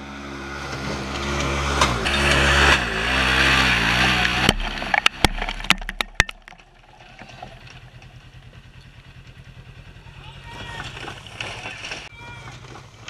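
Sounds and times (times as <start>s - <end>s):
engine revving hard: 0.0s - 5.1s
sharp cracks: 3.6s - 9.4s
faint low pulsing engine: 6.4s - 13.0s.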